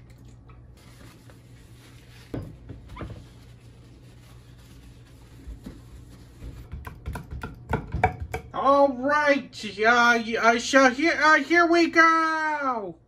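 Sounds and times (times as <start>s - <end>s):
paper towel rubbing glass: 0.8s - 6.7s.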